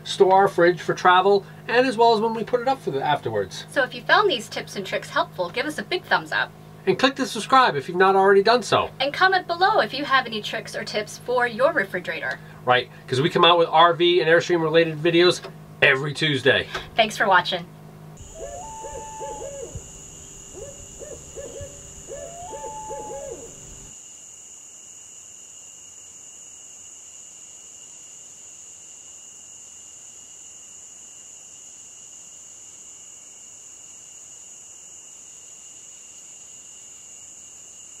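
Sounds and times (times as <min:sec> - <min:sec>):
night insects droning: 0:00.0 - 0:17.3, 0:18.2 - 0:38.0
owl hooting: 0:18.2 - 0:23.9.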